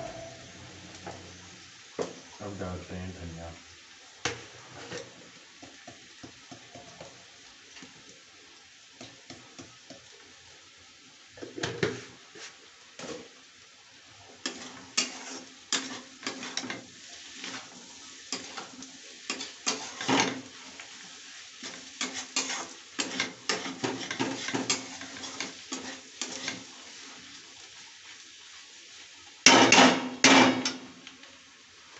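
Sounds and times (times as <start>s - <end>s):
metal spatula scraping metal pan: 0.0s - 1.2s, 14.4s - 20.5s, 21.6s - 26.7s
faint frying sizzle: 0.0s - 31.9s.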